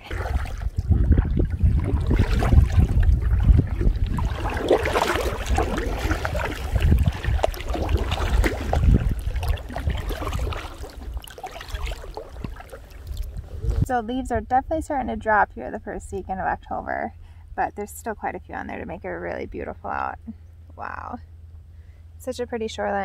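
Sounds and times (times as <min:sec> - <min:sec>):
water lapping against kayak: 0:00.0 - 0:14.0
low rumble: 0:00.0 - 0:23.0.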